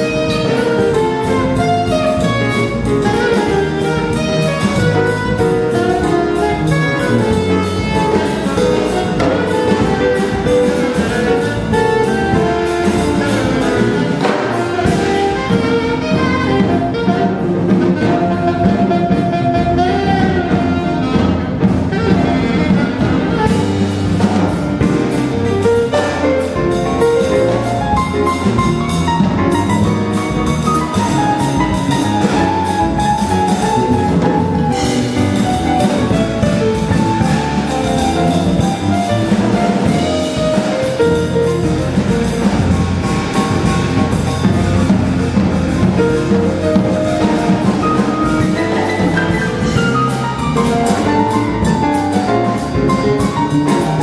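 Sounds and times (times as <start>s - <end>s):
drum kit with cymbals: 0.0s - 54.0s
electric bass: 0.0s - 54.0s
grand piano: 0.0s - 54.0s.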